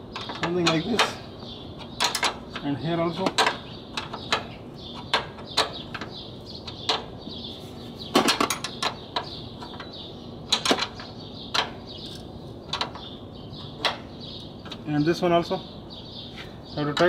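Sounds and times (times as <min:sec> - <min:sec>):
spanner clinking on nuts: 0:08.2 - 0:09.9.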